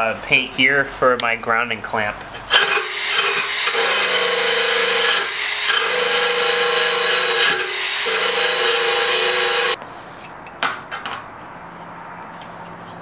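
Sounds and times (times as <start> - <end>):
power tool grinding metal: 2.4 - 9.8.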